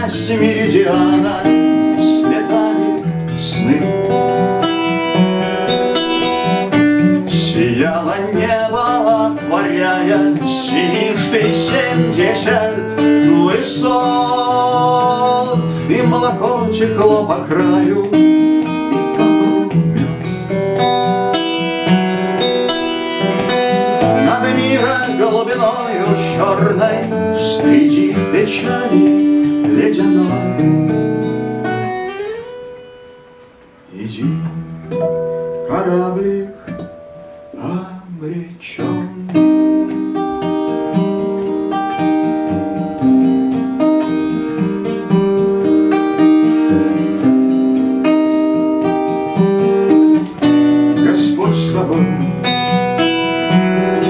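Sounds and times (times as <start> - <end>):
man singing: 0.0 - 4.2, 6.7 - 19.8, 23.2 - 30.9, 33.9 - 34.5, 35.6 - 36.9, 37.5 - 40.2, 50.3 - 54.0
acoustic guitar strumming: 0.0 - 54.0.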